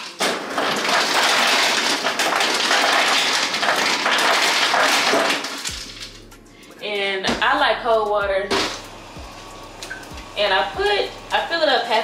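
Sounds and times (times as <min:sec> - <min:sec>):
ice cubes clattering into bottle: 0:00.0 - 0:05.7.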